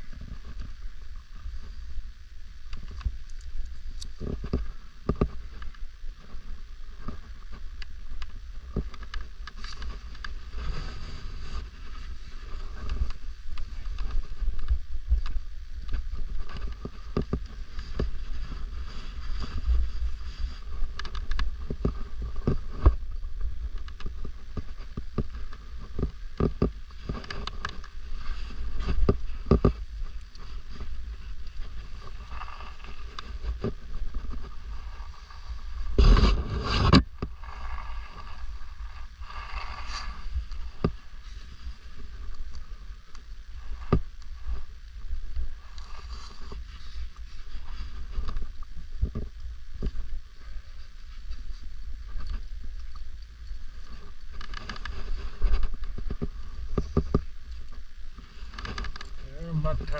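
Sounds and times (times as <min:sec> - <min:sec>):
wind rumble on microphone: 0:00.0 - 0:59.9
gear clicks knocks and scrapes: 0:07.0 - 0:44.3, 0:51.2 - 0:59.9.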